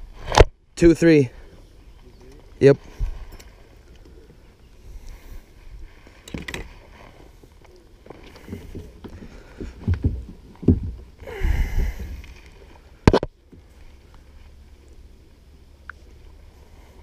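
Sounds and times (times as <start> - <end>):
knocks against plastic hull: 8.6 - 11.1.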